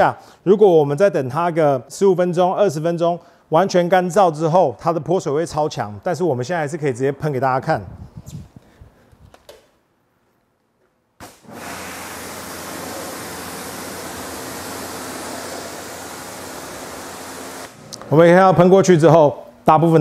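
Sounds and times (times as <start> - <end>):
water jet spraying on car: 11.2 - 17.8.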